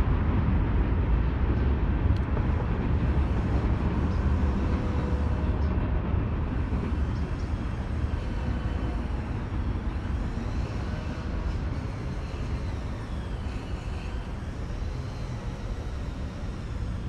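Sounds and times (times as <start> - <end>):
freight train rumbling past: 0.0 - 17.0.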